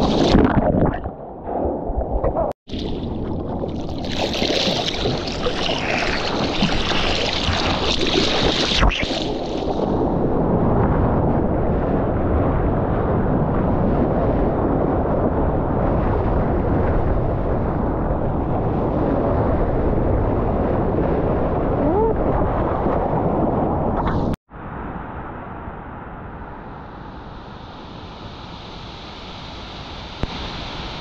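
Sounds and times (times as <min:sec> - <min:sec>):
wind and seawater rushing: 0:00.0 - 0:24.4.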